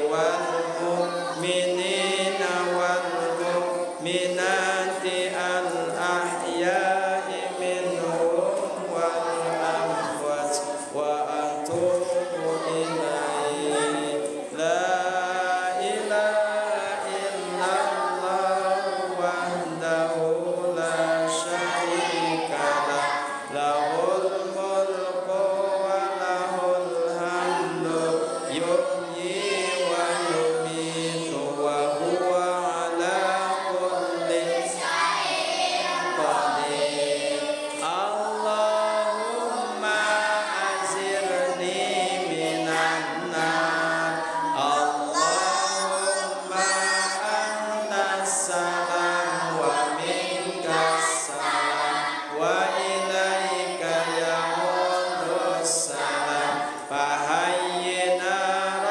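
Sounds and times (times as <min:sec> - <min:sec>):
man leading a chant: 0:00.0 - 0:18.6
group of voices chanting: 0:00.0 - 0:58.9.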